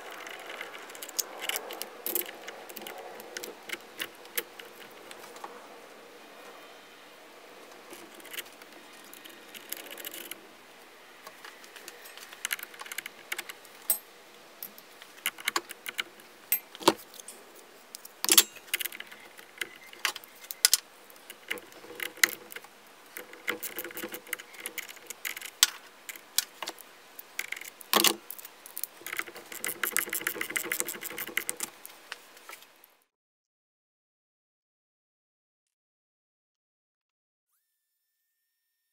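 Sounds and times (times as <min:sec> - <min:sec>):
metal tools clinking on battery: 0:13.8 - 0:14.8, 0:16.5 - 0:17.4, 0:18.2 - 0:19.1.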